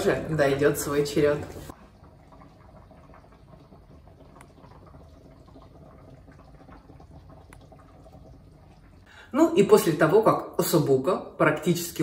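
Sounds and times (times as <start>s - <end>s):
food simmering and bubbling: 0.0s - 9.3s.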